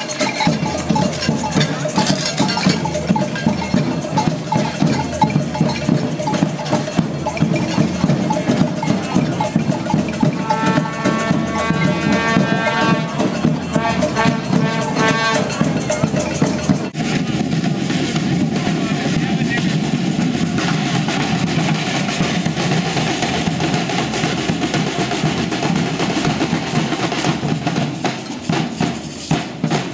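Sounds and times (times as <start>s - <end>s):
crowd hubbub: 0.0s - 29.9s
drums: 0.0s - 29.9s
metallic cowbell clatter: 0.0s - 29.9s.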